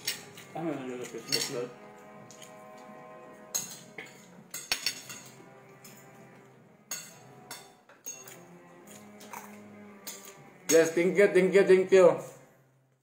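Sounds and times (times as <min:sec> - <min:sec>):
cutlery clinking on dishes: 0:00.0 - 0:01.7, 0:03.5 - 0:06.3, 0:06.9 - 0:11.0
faint background music: 0:00.0 - 0:12.8.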